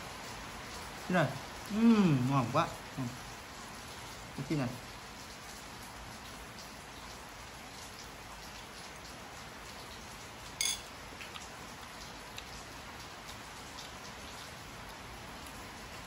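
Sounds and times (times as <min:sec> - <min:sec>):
steady background hiss: 0:00.0 - 0:08.0
metal spoon clinking ceramic bowl: 0:10.6 - 0:10.9.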